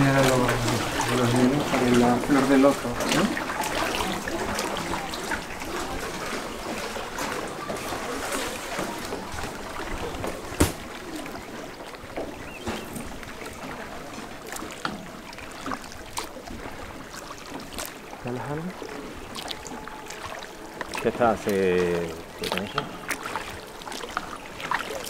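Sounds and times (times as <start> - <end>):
water lapping: 0.0 - 25.0
oars knocking in oarlocks: 8.7 - 11.3.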